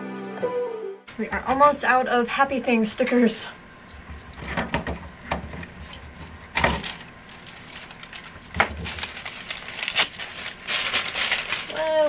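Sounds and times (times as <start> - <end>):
rustling: 6.8 - 12.0.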